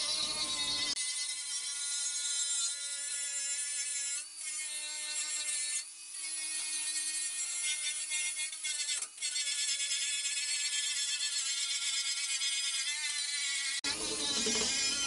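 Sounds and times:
angle grinder whining on steel: 0:00.0 - 0:01.4, 0:08.5 - 0:15.0.

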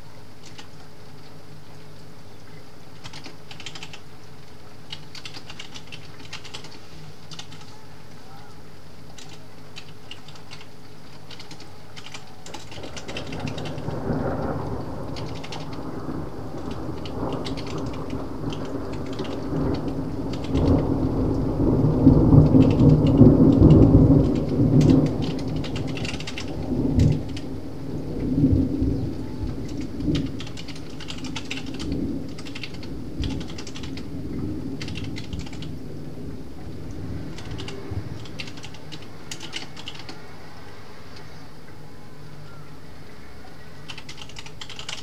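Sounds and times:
rain pattering on glass: 0:00.0 - 0:45.0
keyboard typing: 0:00.4 - 0:00.8, 0:03.0 - 0:04.0, 0:04.9 - 0:07.7, 0:09.1 - 0:14.0, 0:15.1 - 0:15.8, 0:16.6 - 0:20.8, 0:22.3 - 0:27.5, 0:29.6 - 0:34.1, 0:34.8 - 0:35.7, 0:37.3 - 0:40.2, 0:43.9 - 0:45.0
thunder rumbling: 0:11.3 - 0:40.6.

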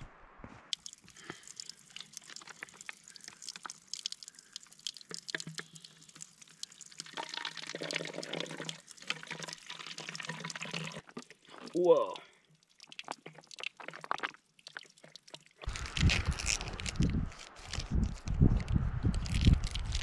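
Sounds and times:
running water splashing: 0:00.7 - 0:15.9.

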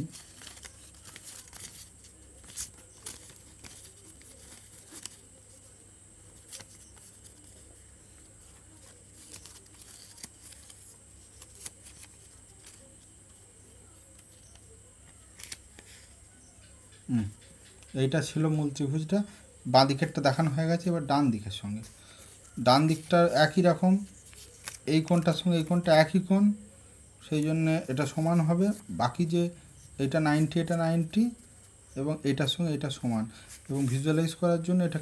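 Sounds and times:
paper rustling: 0:00.0 - 0:16.4, 0:21.6 - 0:26.2, 0:32.4 - 0:35.0.

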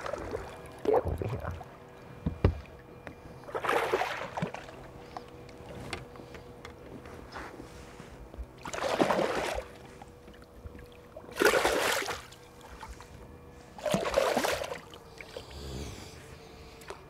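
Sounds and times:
water splashing: 0:00.0 - 0:02.8, 0:03.5 - 0:04.9, 0:08.6 - 0:09.9, 0:10.9 - 0:12.9, 0:13.8 - 0:15.4
faint steady hum: 0:00.0 - 0:17.0.

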